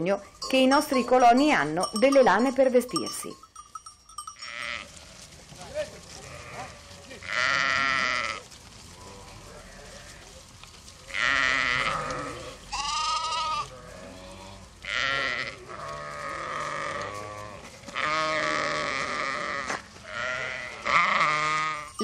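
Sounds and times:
sheep bleating: 4.3 - 5.3, 6.1 - 8.4, 9.0 - 10.3, 11.1 - 22.0.

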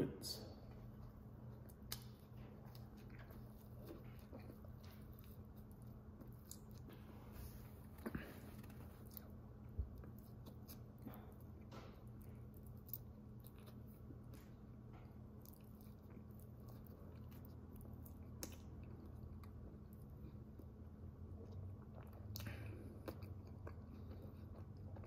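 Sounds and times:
steady low hum: 0.0 - 25.0
person chewing with mouth closed: 0.6 - 25.0
soft mouth clicks and smacks: 1.6 - 7.0, 8.6 - 20.7.

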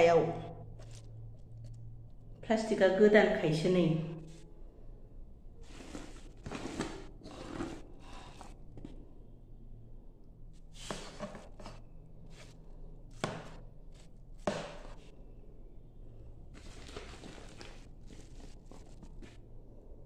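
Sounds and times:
plastic sheet rustling: 16.5 - 19.4.

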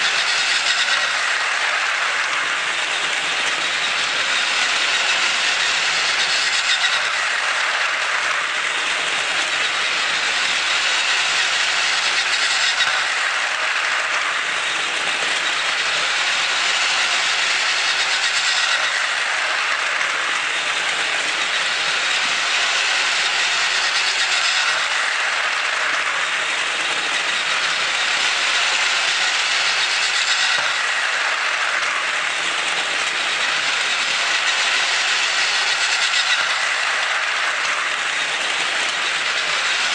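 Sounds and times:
plastic wheels rattling on track: 0.0 - 39.9
toy train motor whirring: 0.0 - 39.9.

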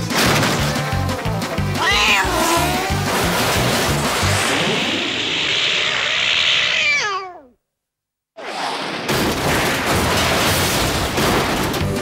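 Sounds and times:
cartoon cat yowl sliding down: 4.6 - 7.6.

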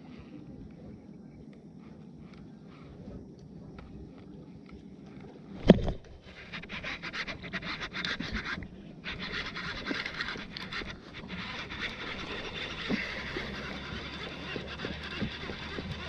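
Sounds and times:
fishing reel clicking whir: 6.3 - 16.0.

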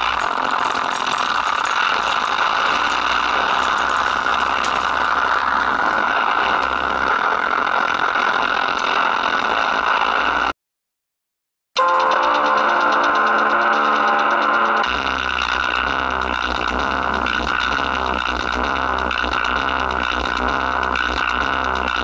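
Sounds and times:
woofer playing dense sound: 0.0 - 10.5.

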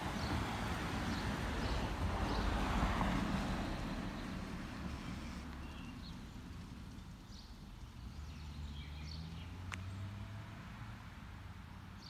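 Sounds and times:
faint high bird chirps: 4.9 - 6.2.

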